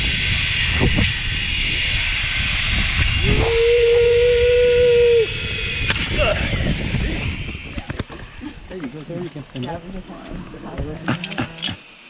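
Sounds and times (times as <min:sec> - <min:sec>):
rising held tone: 0:00.0 - 0:08.5
zipline trolley hissing on cable: 0:00.0 - 0:08.7
wind rumbling on microphone: 0:00.0 - 0:11.1.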